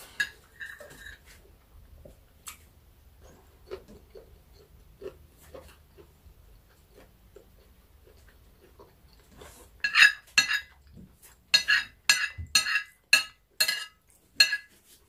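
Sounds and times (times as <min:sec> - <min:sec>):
metal spoon clinking on plate: 0:09.8 - 0:10.7, 0:11.6 - 0:14.7.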